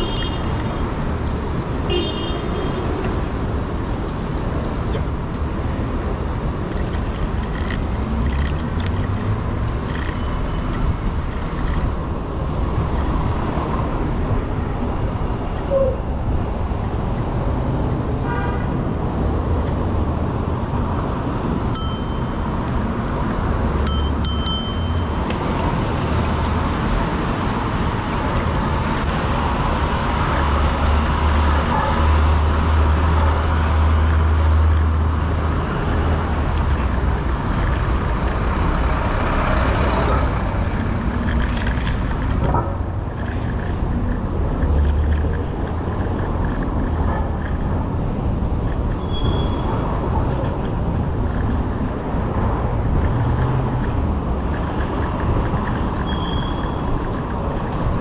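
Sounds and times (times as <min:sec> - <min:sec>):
city traffic: 0:00.0 - 0:58.0.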